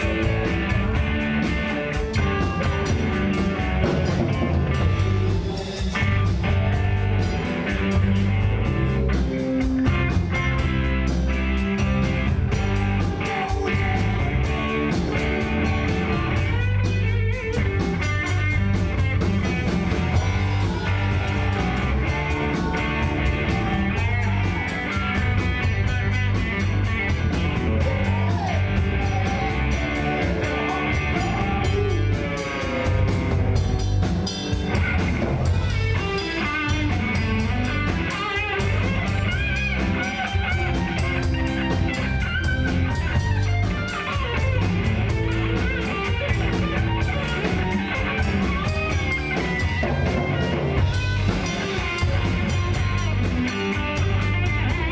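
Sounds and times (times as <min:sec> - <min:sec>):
bass guitar: 0:00.0 - 0:54.9
drum kit: 0:00.0 - 0:54.9
electric guitars: 0:00.0 - 0:54.9
man singing: 0:27.8 - 0:33.5.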